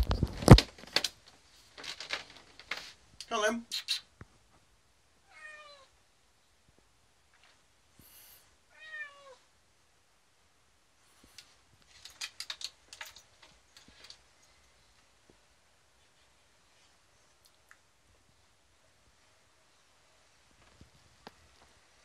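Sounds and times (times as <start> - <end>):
cat meowing: 5.2 - 5.9, 8.7 - 9.5
claws scrabbling on glass: 11.4 - 14.2.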